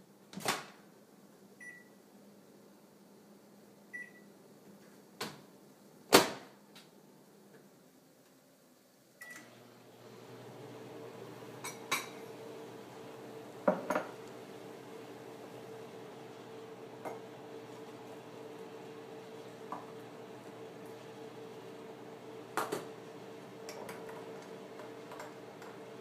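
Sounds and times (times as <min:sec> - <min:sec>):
electric appliance hum: 0:09.2 - 0:26.0.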